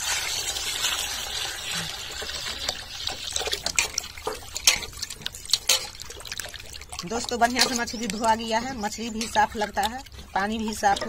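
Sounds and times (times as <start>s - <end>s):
water pouring into steel bowl: 0.0s - 11.0s.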